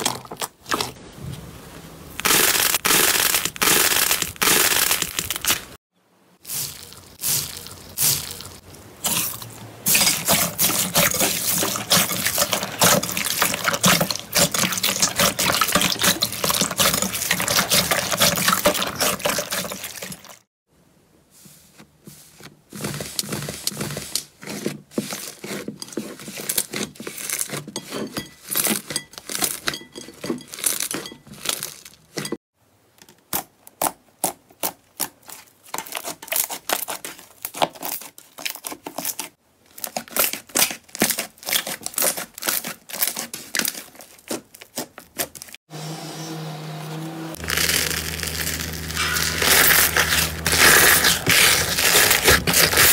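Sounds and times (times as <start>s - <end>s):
wet crackling of slime: 6.4s - 20.5s, 34.6s - 45.6s, 47.4s - 52.9s.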